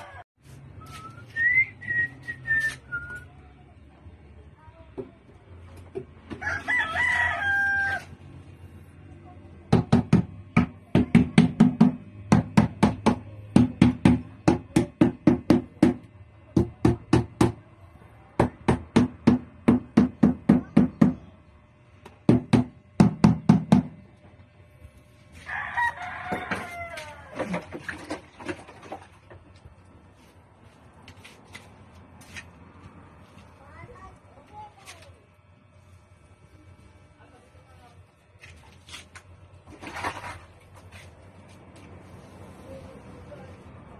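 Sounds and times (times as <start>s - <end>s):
rooster crowing: 0.0s - 0.2s, 6.3s - 8.3s, 25.4s - 27.4s
rubber mallet knocking on steel sink: 9.7s - 17.6s, 18.4s - 21.2s, 22.2s - 24.0s.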